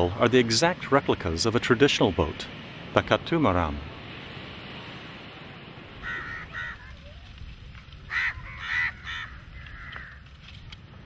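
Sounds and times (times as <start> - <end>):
crows cawing: 6.0 - 7.0, 8.0 - 10.4.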